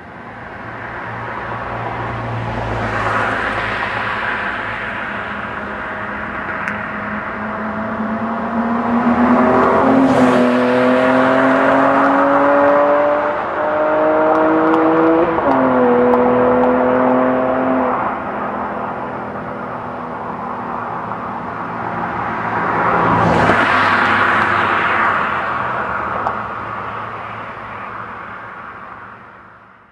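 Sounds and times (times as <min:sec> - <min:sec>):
car engine accelerating past: 0:07.3 - 0:18.2.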